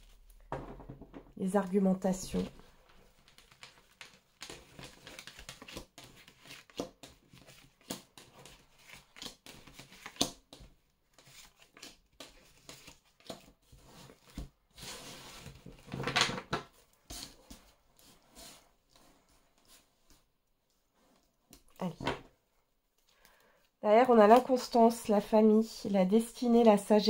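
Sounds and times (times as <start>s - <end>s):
deck of cards rustling: 1.5s - 20.3s.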